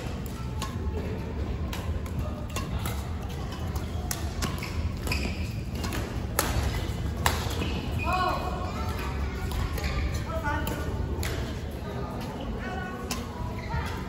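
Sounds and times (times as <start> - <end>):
rackets striking shuttlecock: 0.0 - 8.0, 9.4 - 11.6
low hum in hall: 0.0 - 14.0.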